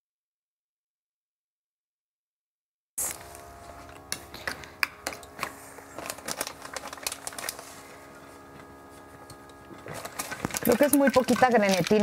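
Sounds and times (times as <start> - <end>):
steady hum: 3.0 - 12.0
utensils and containers clattering: 4.2 - 8.3, 9.2 - 12.0.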